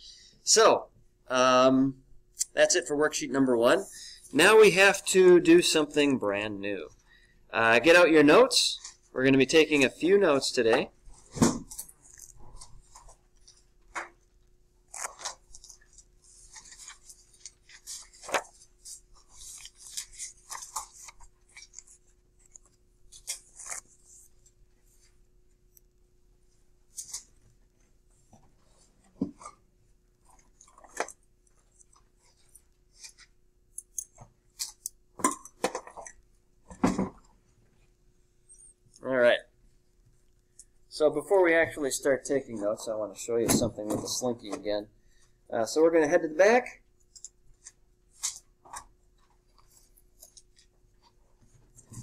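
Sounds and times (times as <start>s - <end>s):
faint steady hum: 0.0s - 52.0s
paper rustling: 11.1s - 25.2s.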